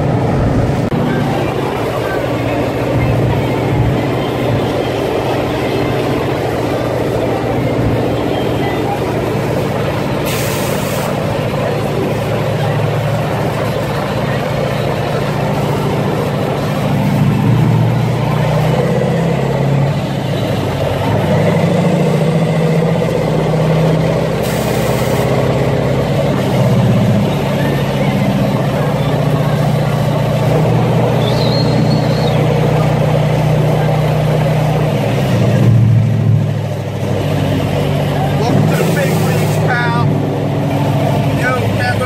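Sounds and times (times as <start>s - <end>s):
truck engine from inside the cab: 0.0s - 42.0s
brief hiss: 10.2s - 11.2s.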